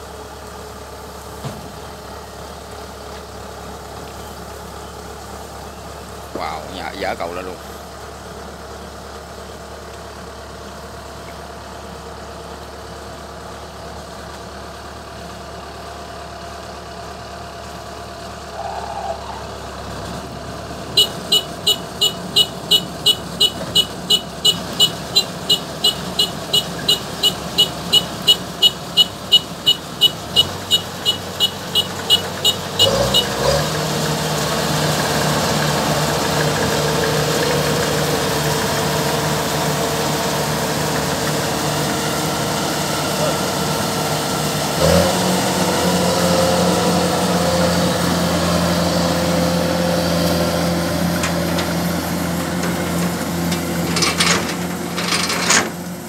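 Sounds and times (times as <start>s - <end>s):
diesel engine running: 0.0s - 56.0s
warning beeper: 21.0s - 33.4s.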